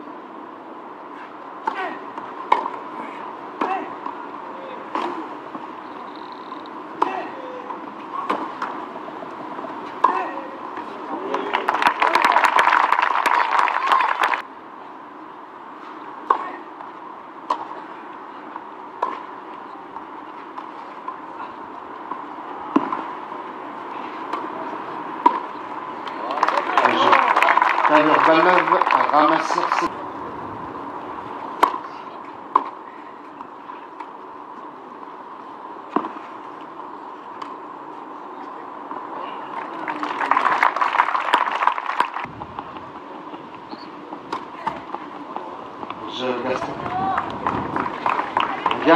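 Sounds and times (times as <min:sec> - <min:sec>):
faint steady hum: 0:00.0 - 0:48.9
low steady background noise: 0:00.0 - 0:48.9
crowd applause: 0:11.1 - 0:14.4, 0:26.0 - 0:29.9, 0:39.2 - 0:42.3, 0:46.5 - 0:48.9
tennis ball struck by racket: 0:22.1 - 0:23.1, 0:25.2 - 0:25.5, 0:31.6 - 0:31.9.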